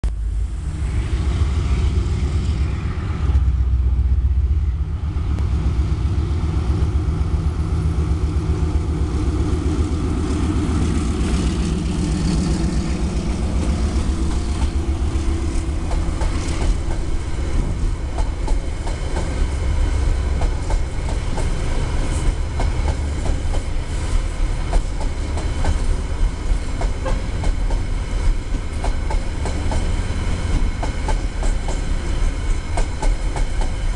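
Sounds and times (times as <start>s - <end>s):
diesel locomotive engine running: 0.0s - 33.9s
train wheels clicking over rail joints: 8.5s - 33.9s.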